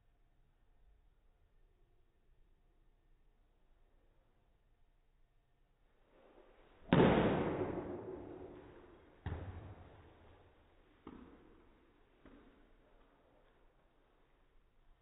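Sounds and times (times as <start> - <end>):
bat cracking ball: 6.9 - 10.3.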